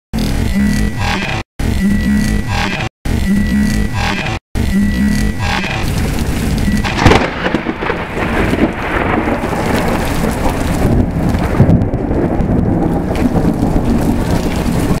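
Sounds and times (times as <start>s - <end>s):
thunder crack: 5.9s - 15.0s
thunder rumbling: 5.9s - 15.0s.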